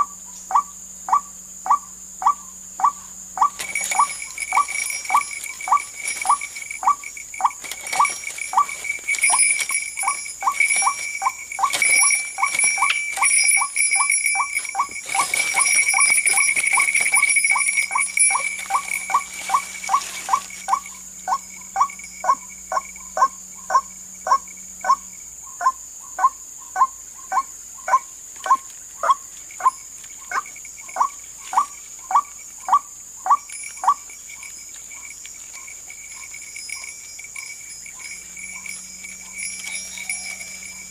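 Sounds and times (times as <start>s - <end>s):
waterhen calling: 0.5s - 22.4s
leaves rustling and handling: 3.6s - 20.9s.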